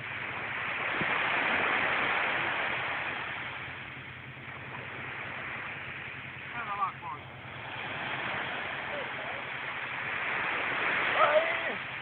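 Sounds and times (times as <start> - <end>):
wave breaking on shore: 0.0 - 12.0.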